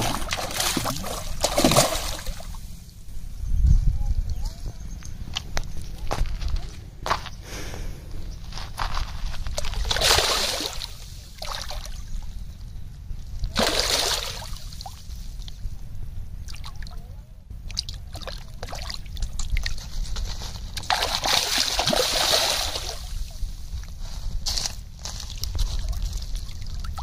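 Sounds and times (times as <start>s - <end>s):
fish thrashing and splashing: 0.0s - 2.6s, 9.6s - 11.9s, 13.5s - 14.6s, 20.7s - 23.1s.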